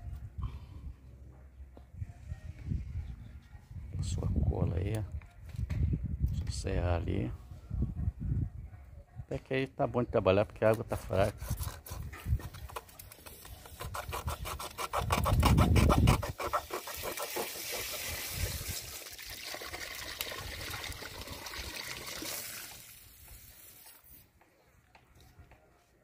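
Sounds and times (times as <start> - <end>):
water spraying from pipe joint: 16.5 - 24.2.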